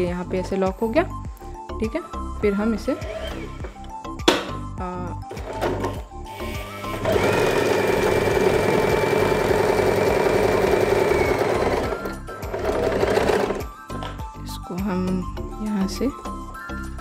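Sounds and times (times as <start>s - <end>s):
sewing machine running: 5.3s - 13.7s.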